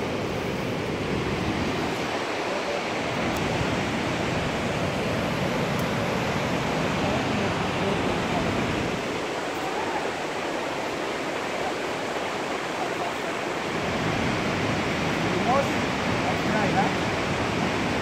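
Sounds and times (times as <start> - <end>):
river rushing: 0.0 - 18.0.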